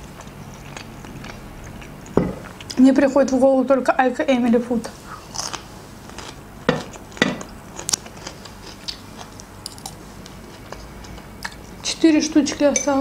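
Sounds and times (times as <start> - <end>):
person chewing: 0.0 - 2.8, 5.2 - 11.7.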